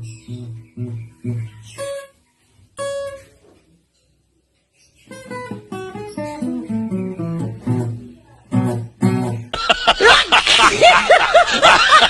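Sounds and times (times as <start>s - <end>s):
acoustic guitar notes: 0.0s - 3.4s, 5.0s - 10.7s
loud cackling laughter: 9.5s - 12.0s.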